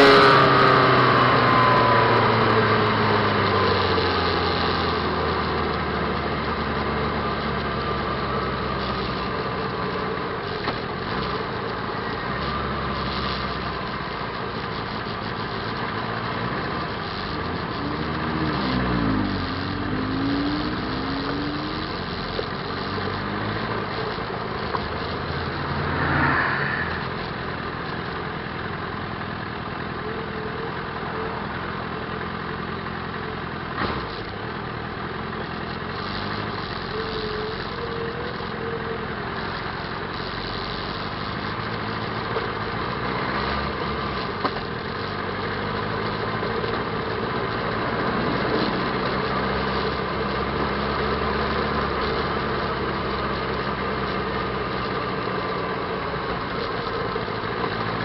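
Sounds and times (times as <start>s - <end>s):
motorcycle engine running: 0.0s - 58.0s
road and wind noise: 0.0s - 58.0s
bus passing: 25.0s - 28.6s.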